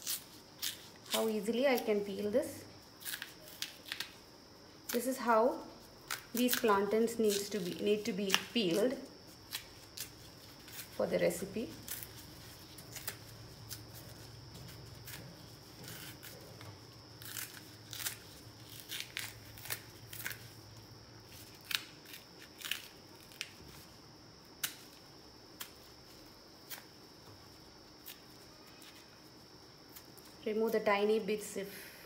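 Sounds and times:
plantain peel snapping and crackling: 2.9 - 4.2, 6.0 - 11.0, 11.8 - 23.9, 24.6 - 25.8.

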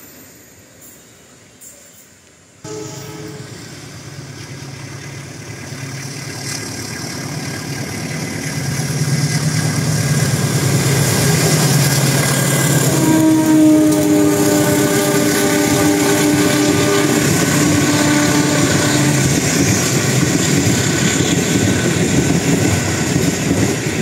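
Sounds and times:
diesel locomotive engines droning: 0.6 - 24.0
locomotive horn: 2.6 - 3.8, 12.4 - 19.5.

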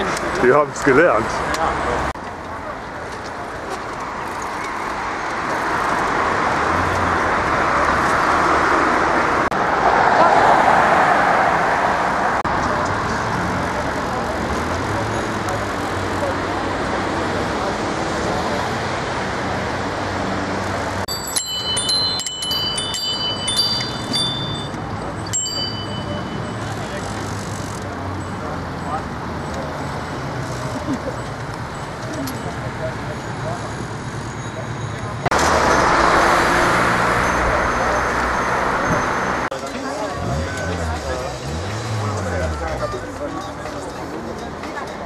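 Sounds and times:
road traffic noise: 0.0 - 45.0
bicycle bells ringing: 21.0 - 28.9.

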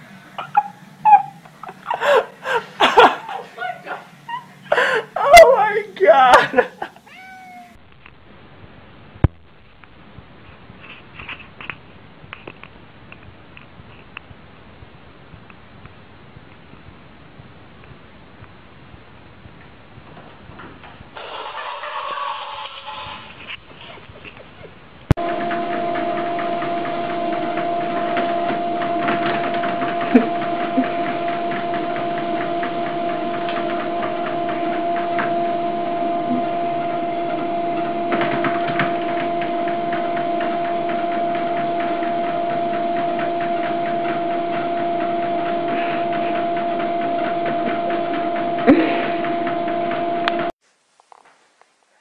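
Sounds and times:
treadmill motor hum: 0.0 - 6.7, 25.2 - 50.5
treadmill belt rumble: 25.2 - 50.5.

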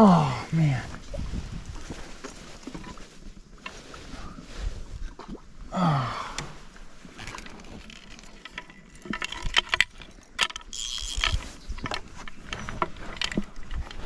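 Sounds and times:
fly reel ratchet clicking: 10.4 - 11.4.

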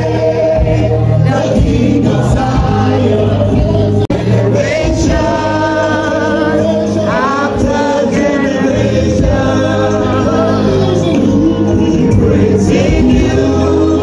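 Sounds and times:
choir singing gospel: 0.0 - 14.0
steady bass accompaniment: 0.0 - 14.0.

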